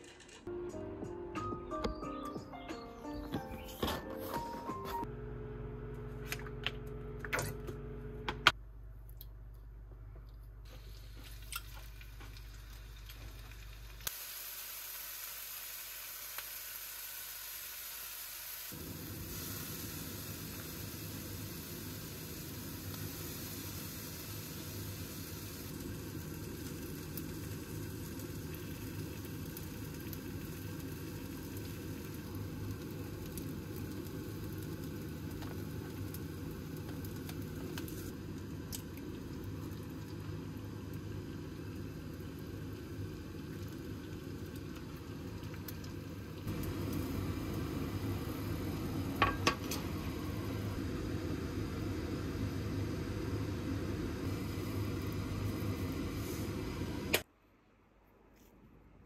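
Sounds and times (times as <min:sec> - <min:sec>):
rice sizzling in a frying pan: 0:10.7 - 0:57.1.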